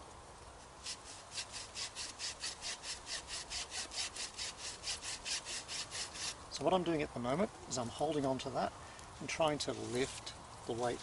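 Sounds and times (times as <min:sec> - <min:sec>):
hacksaw sawing through green wood: 0:00.8 - 0:06.4.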